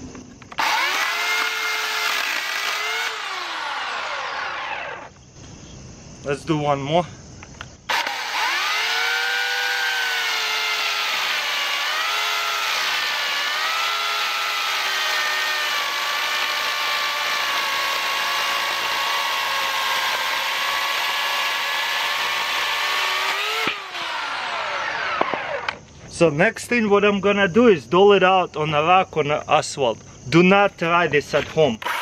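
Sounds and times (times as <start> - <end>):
electric chainsaw cutting log: 0.5 - 5.1, 7.9 - 25.8.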